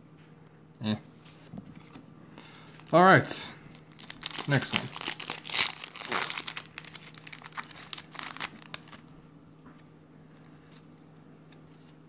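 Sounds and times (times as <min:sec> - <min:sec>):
foil wrapper tearing and crinkling: 0:02.7 - 0:03.0, 0:03.7 - 0:09.1.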